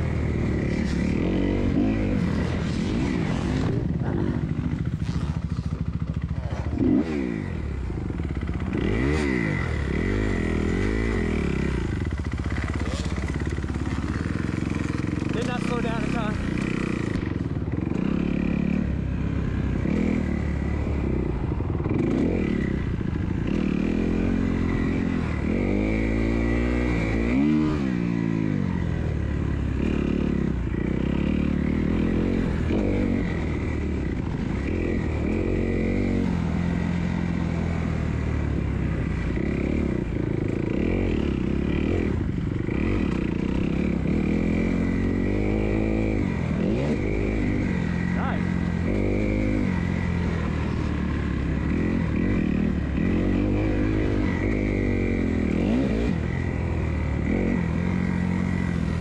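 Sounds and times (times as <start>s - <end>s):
motocross bike engine revving: 0.0s - 59.0s.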